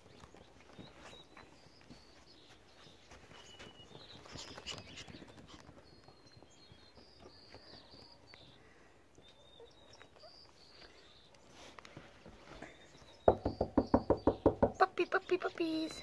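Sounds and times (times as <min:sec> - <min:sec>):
puppy paws tapping on carpet: 0:00.0 - 0:10.3.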